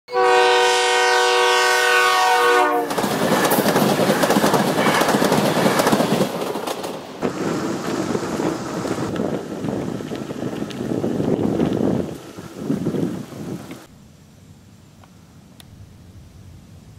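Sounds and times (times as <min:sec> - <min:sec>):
train horn chord: 0:00.1 - 0:02.9
train wheels on rails: 0:02.5 - 0:13.9
clacking over track joints: 0:02.9 - 0:07.1.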